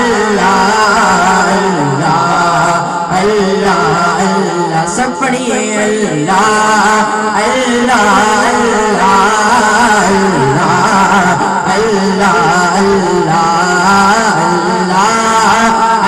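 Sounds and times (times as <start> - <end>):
boy singing chant into microphone: 0.0 - 16.0.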